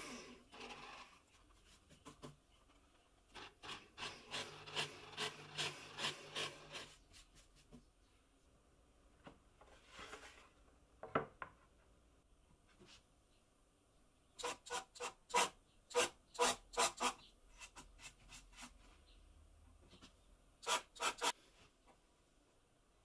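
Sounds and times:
drill rasping into plywood: 3.4 - 6.9.

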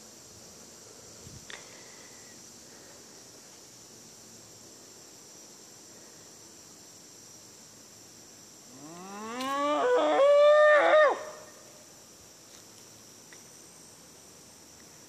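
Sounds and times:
loud howl: 8.9 - 11.5.

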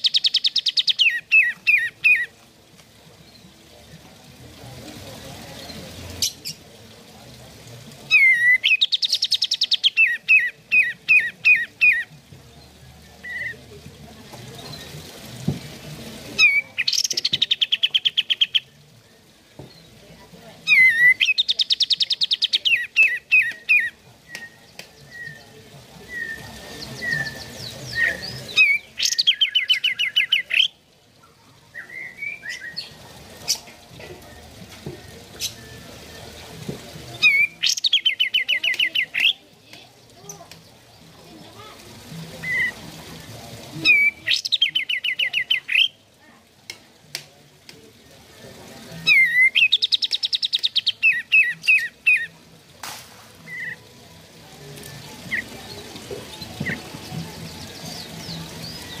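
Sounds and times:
bird singing whistles and trills: 0.0 - 2.3, 8.1 - 12.1, 13.0 - 13.6, 20.6 - 30.7, 31.7 - 33.7, 49.0 - 52.3.

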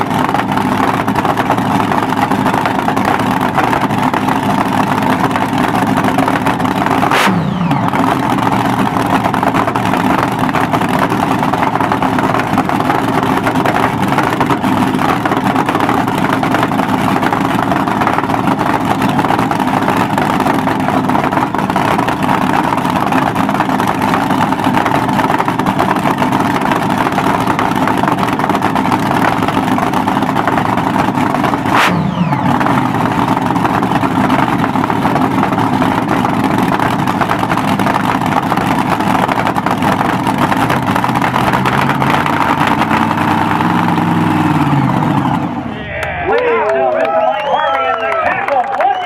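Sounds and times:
dragster engine idling: 0.0 - 45.8.

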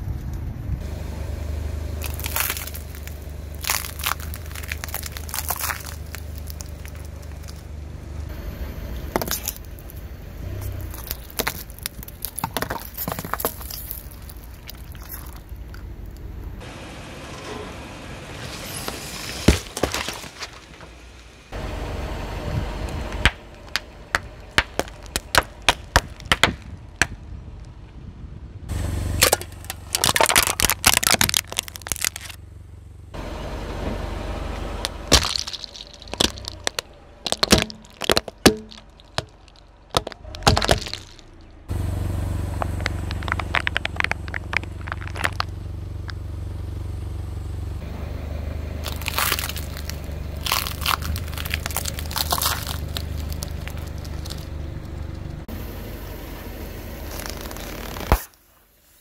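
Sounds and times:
car humming: 0.0 - 58.8
things cracking under tyre: 2.0 - 7.8, 9.0 - 16.5, 18.8 - 21.4, 22.9 - 28.0, 29.2 - 32.4, 34.6 - 41.7, 42.5 - 46.2, 48.8 - 55.5, 57.0 - 58.5.

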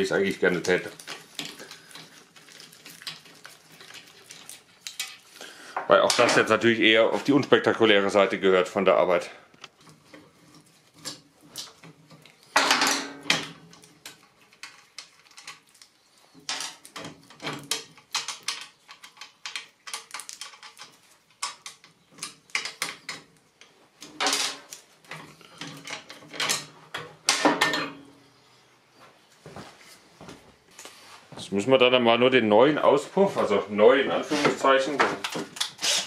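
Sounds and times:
metal tools clinking and clattering: 10.1 - 15.6, 16.4 - 23.3, 24.0 - 28.0.

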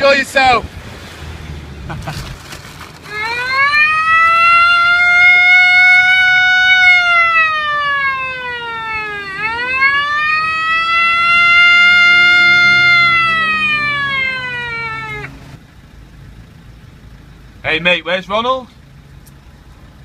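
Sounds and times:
wailing siren: 3.0 - 15.6.

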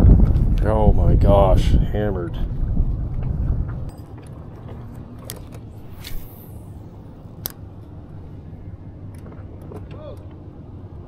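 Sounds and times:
wind buffeting microphone: 0.0 - 7.2
short hiss: 5.9 - 6.8.

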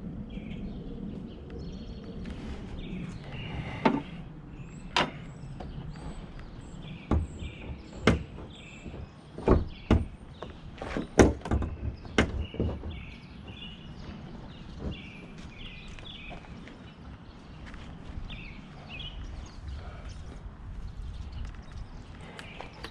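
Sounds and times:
car hood knocks and metallic clunks: 7.0 - 13.8.

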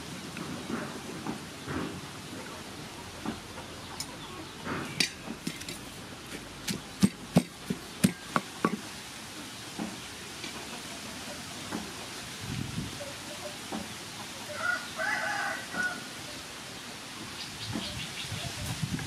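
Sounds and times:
wooden pestle pounding in mortar: 6.6 - 8.8.

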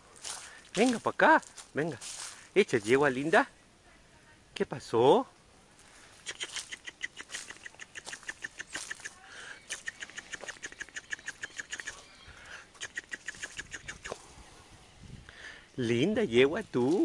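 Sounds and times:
bird chattering: 6.2 - 14.2.

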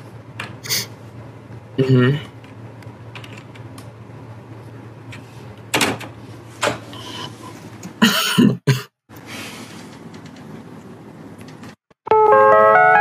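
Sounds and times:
person coughing: 8.0 - 9.0.

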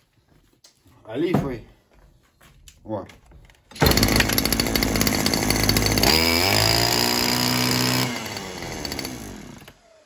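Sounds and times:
brushcutter engine running: 3.8 - 10.0.

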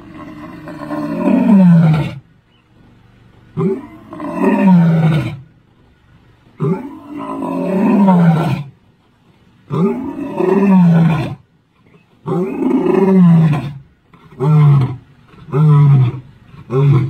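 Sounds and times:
lion roaring: 0.0 - 2.3, 3.6 - 5.5, 6.6 - 8.8, 9.7 - 11.4, 12.2 - 17.0.

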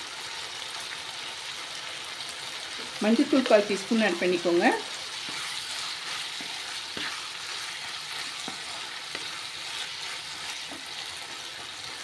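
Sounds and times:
food sizzling in oil: 0.0 - 12.0
spatula tapping pan: 5.2 - 11.7.

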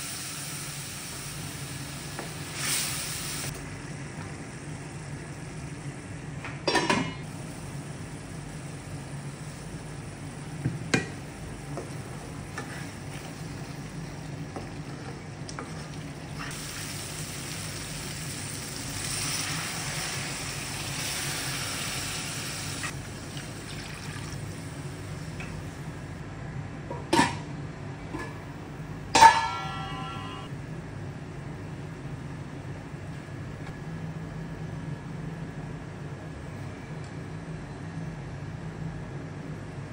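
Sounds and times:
liquid sizzling in a hot pan: 0.0 - 3.5, 16.4 - 24.8
steady low hum: 3.3 - 39.9.

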